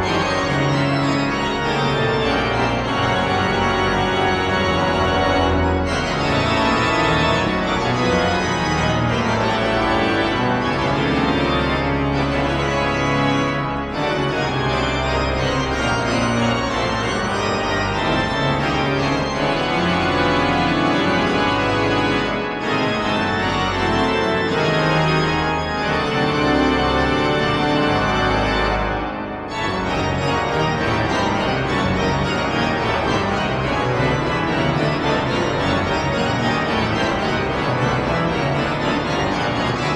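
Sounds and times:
pipe organ playing chords: 0:00.0 - 0:39.9.

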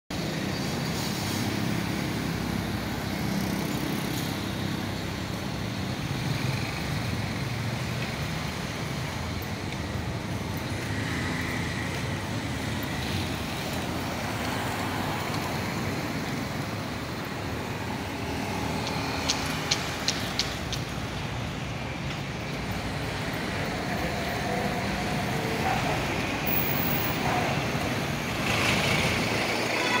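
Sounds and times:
road traffic noise: 0:00.1 - 0:30.0
sharp clicks: 0:18.8 - 0:21.0.

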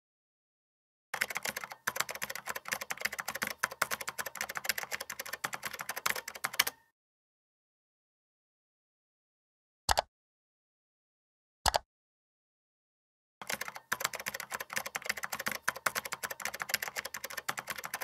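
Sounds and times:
typing on a keyboard: 0:01.2 - 0:06.8, 0:13.4 - 0:18.0.

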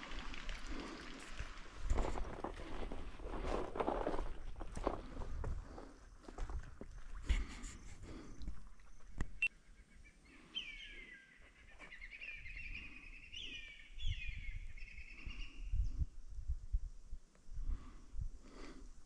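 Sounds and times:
bird singing downward notes: 0:08.9 - 0:15.6.

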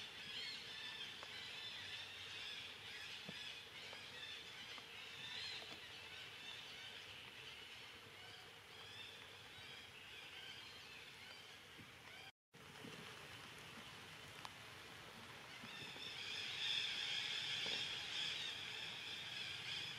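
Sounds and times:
soft ticks: 0:14.4 - 0:14.6.

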